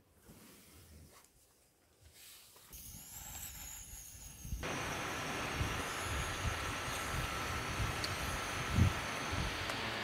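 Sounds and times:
gas burner hissing: 0:04.6 - 0:10.0.

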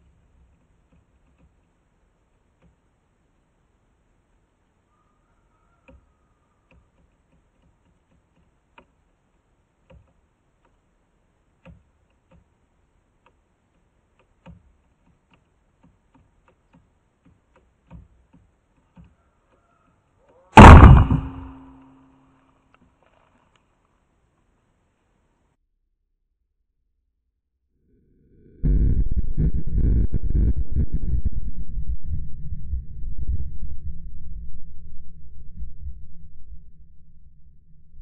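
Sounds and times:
faint clicks: 0:00.0 - 0:03.0, 0:05.8 - 0:20.5
plastic bottle bursting bang: 0:20.6 - 0:21.8.

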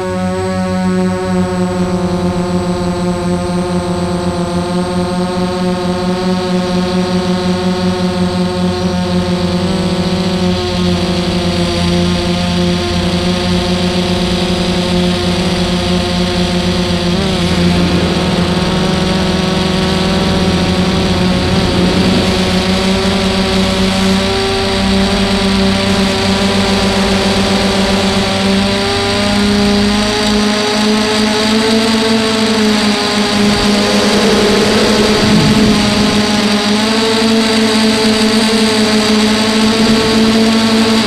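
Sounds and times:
drone motors whining: 0:16.1 - 0:38.2.

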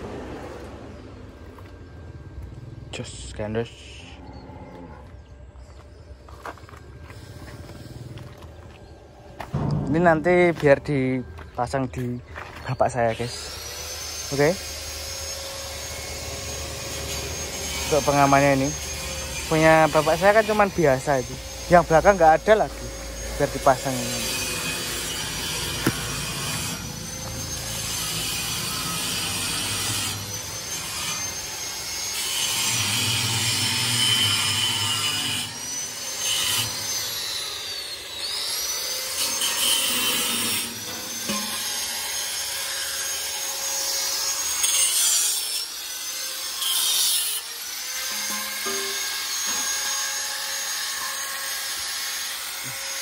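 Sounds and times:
angle grinder grinding steel: 0:12.8 - 0:53.0.

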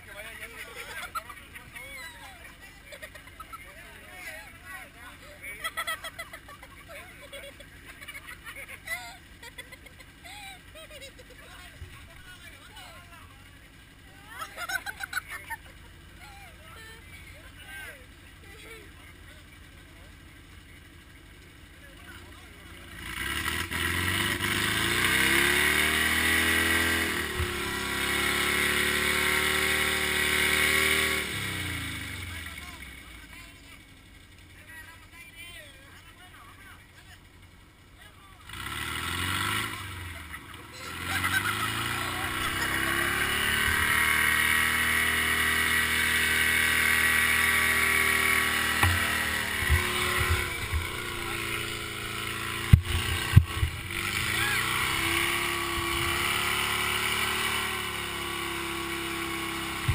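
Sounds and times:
car engine revving hard: 0:22.8 - 0:32.9, 0:38.4 - 0:59.9
low thumps: 0:48.7 - 0:52.0, 0:52.6 - 0:53.9.

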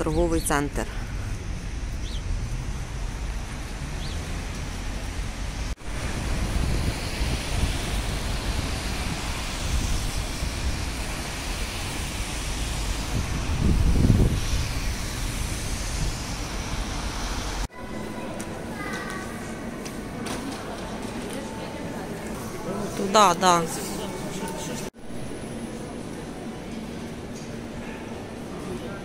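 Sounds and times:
wind rumble: 0:00.0 - 0:20.2
traffic rumble: 0:00.0 - 0:29.0.

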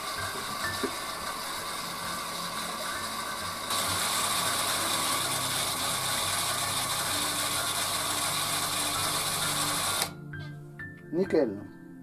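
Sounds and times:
water pump motor running: 0:00.0 - 0:10.1.

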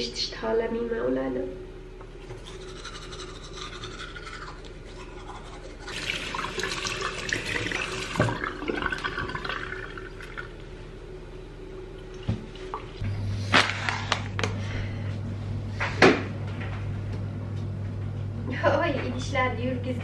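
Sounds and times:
toothbrush scrubbing teeth: 0:02.3 - 0:07.5
tap running into sink: 0:06.6 - 0:09.4.

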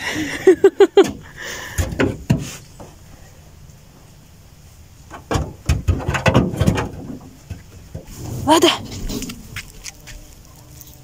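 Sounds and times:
knocks and thumps: 0:01.0 - 0:02.9, 0:05.1 - 0:09.7.

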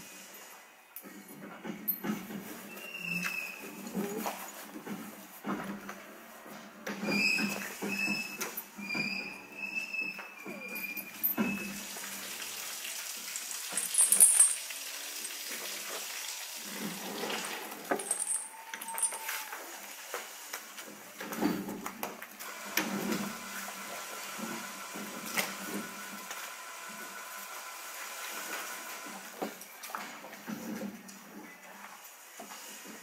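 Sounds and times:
cattle barn background noise: 0:00.0 - 0:33.0
metal chain rattle: 0:13.4 - 0:15.3, 0:17.9 - 0:19.3
metallic clinks and knocks: 0:13.5 - 0:14.7, 0:17.9 - 0:19.4.

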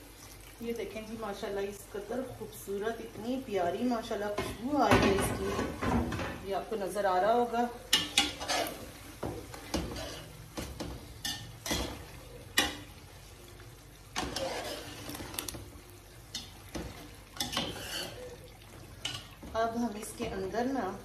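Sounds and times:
food sizzling: 0:00.0 - 0:21.0
metal ladle scraping pot: 0:05.1 - 0:06.2, 0:07.9 - 0:08.9, 0:09.6 - 0:12.9, 0:14.2 - 0:15.6, 0:16.3 - 0:18.4.

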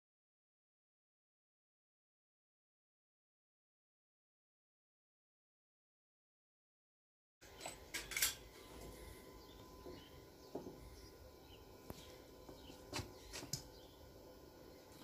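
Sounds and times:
faint outdoor background: 0:07.4 - 0:15.0.

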